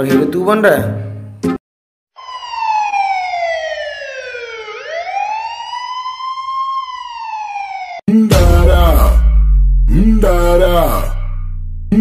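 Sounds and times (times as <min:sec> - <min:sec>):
siren wailing: 0:02.2 - 0:08.1.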